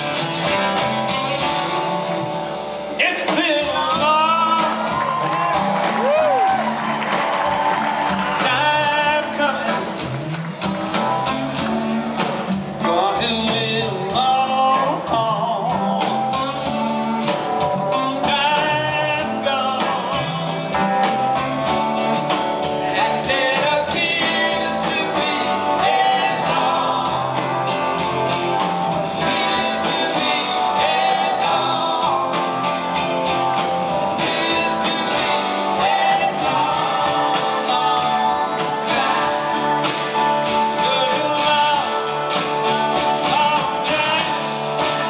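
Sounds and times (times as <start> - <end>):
drums: 0.0 - 45.0
electric guitars: 0.0 - 45.0
person singing: 3.0 - 6.4, 8.1 - 10.1, 22.8 - 27.8, 29.1 - 32.8, 34.0 - 42.2, 43.1 - 45.0.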